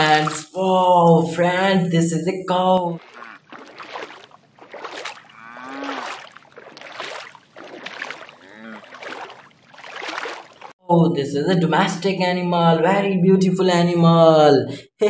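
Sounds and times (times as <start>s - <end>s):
cow calls: 3.0s - 4.2s, 5.1s - 6.8s, 8.1s - 9.5s
cow licking and chewing metal: 3.0s - 6.6s.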